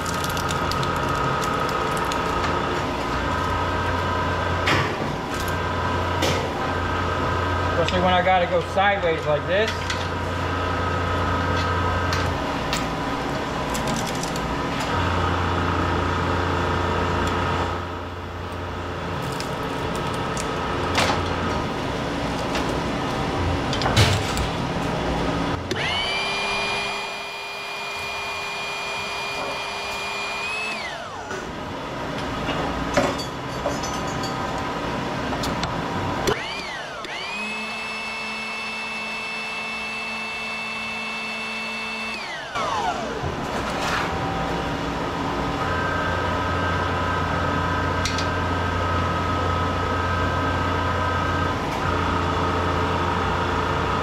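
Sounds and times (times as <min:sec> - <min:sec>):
machine motor whining: 0:19.1 - 0:31.8, 0:35.2 - 0:54.0.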